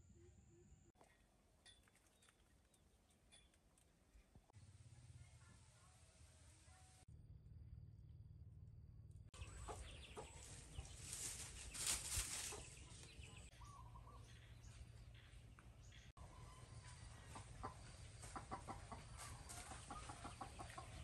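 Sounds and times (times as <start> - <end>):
chickens clucking: 9.4 - 14.5, 16.2 - 21.0.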